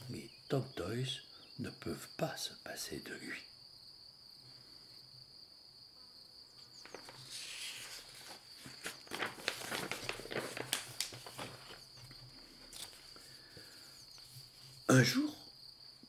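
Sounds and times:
high insect trill: 0.0 - 16.0
paper pages rustling: 6.8 - 14.8.

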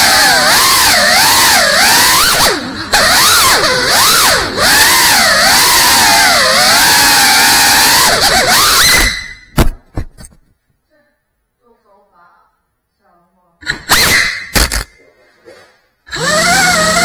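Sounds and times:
drone motors whining: 0.0 - 9.5, 16.1 - 17.0
sharp knock: 9.5 - 10.3.

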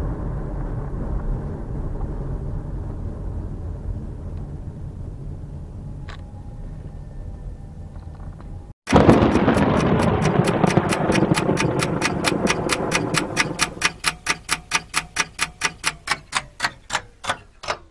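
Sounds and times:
clock ticking: 8.9 - 17.9.

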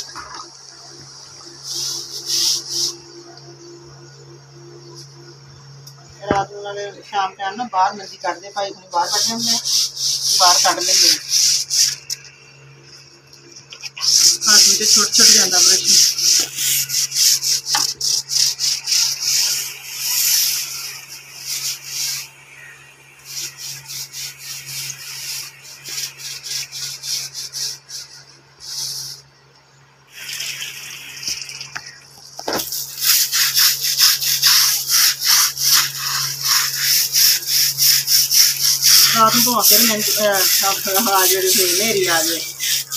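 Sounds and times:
brush scrubbing cord webbing: 8.4 - 12.2, 13.5 - 22.2, 32.5 - 42.9.

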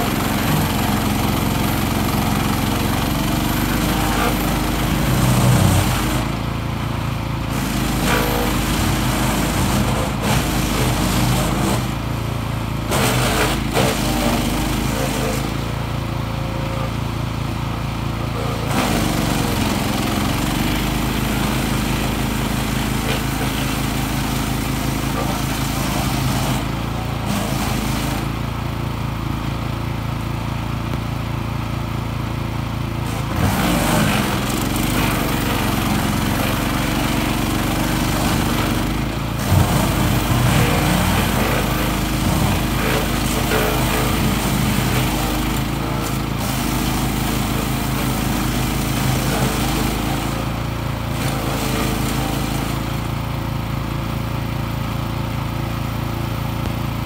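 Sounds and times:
harsh wood chipping noise: 0.0 - 6.6, 7.5 - 12.1, 12.8 - 15.7, 18.4 - 28.5, 33.1 - 53.1
wood chipper engine running: 0.0 - 57.0.

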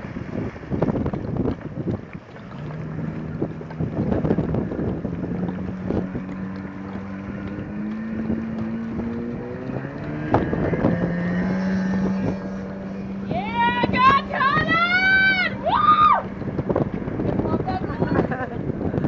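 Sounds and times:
jet ski engine droning: 0.0 - 19.0.

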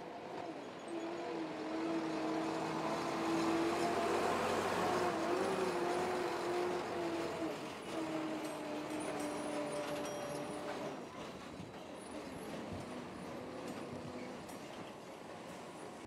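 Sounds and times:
vehicle engine hum: 1.3 - 9.4
tyre and road noise: 1.8 - 15.0.

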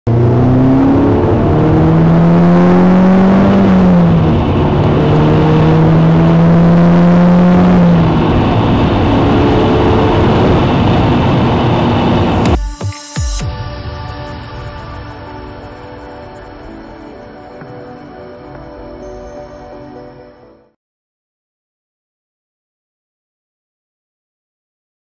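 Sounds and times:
turbocharged car engine revving: 0.1 - 12.6.

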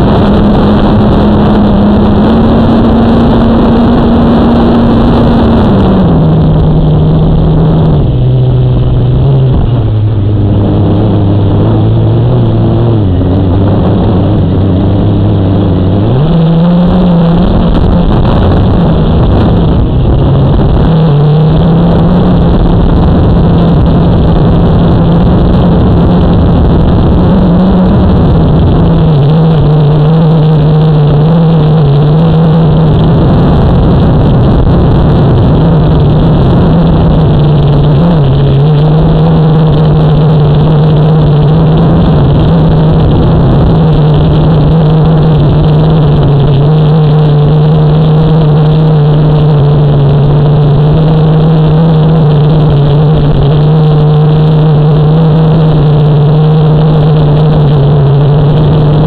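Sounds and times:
aircraft motor and propeller hum: 0.0 - 59.0
wind noise: 0.0 - 59.0.

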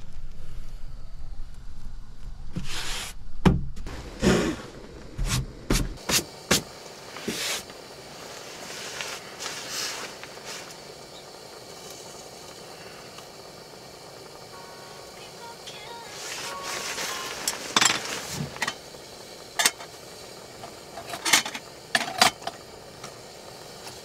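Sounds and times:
faint hiss: 6.0 - 24.0
rustling: 8.2 - 10.8.

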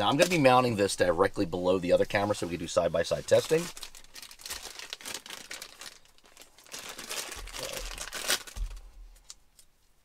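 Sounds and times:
plastic bag crinkling: 2.1 - 9.4.

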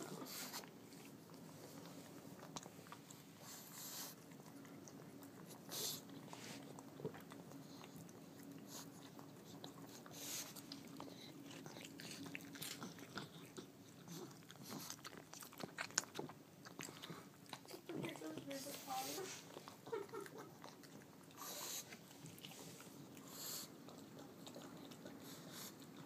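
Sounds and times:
dog crunching crackers: 0.0 - 26.0.

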